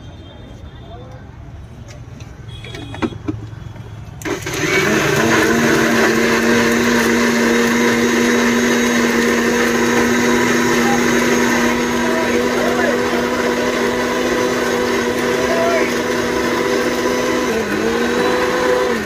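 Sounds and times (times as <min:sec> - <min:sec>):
mixer grinder motor running: 0:04.2 - 0:19.0.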